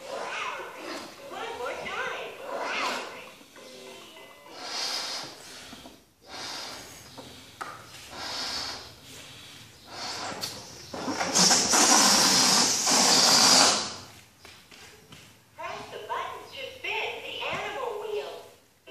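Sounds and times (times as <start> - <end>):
balloon air buzzing out: 0.0 - 3.8, 4.5 - 7.5, 8.1 - 14.1
balloon being blown up: 4.5 - 6.9, 9.9 - 14.1.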